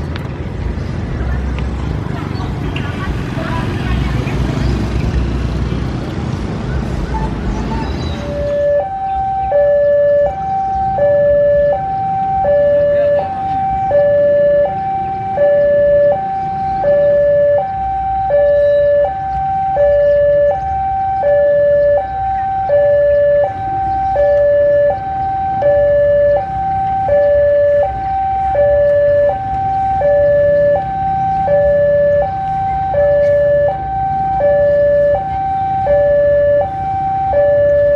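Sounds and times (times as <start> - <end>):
locomotive rumble: 0.0 - 37.9
two-tone electronic warning alarm: 8.2 - 37.9.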